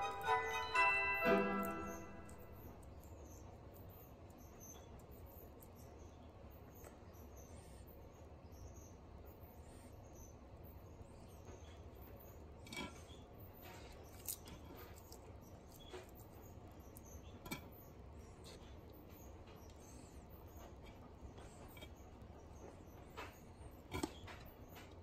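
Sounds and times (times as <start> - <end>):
low background hum: 0.0 - 25.0.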